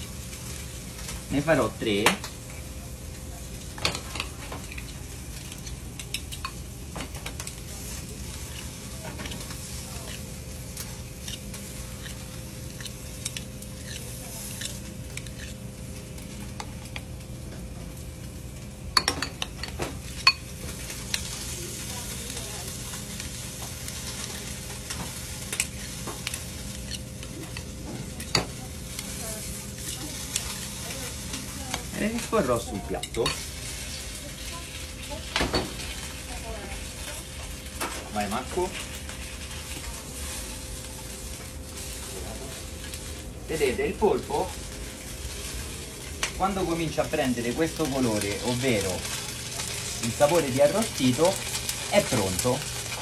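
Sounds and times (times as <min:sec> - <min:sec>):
faint kitchen hum: 0:00.0 - 0:53.0
pan sizzling: 0:00.0 - 0:53.0
spoons scraping and clinking on bowl: 0:10.8 - 0:15.6.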